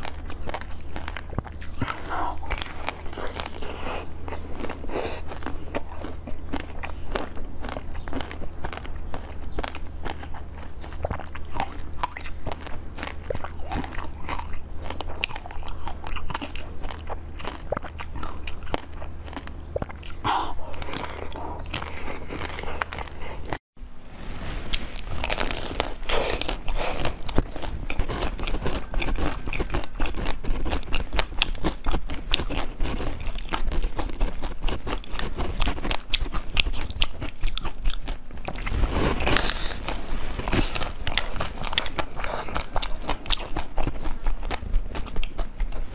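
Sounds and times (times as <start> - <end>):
chewing food: 0.0 - 23.6, 24.7 - 45.9.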